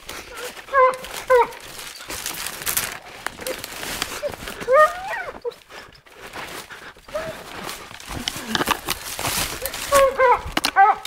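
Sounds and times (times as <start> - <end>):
rustling brush: 0.0 - 11.0
dog yelping: 0.4 - 1.7, 4.2 - 5.6, 9.6 - 11.0.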